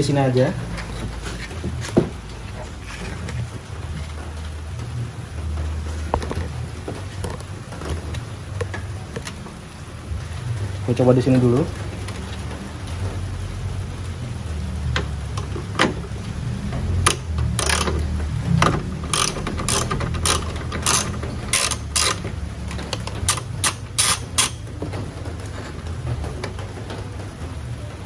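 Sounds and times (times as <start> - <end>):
hand ratchet clicking: 17.0 - 24.6.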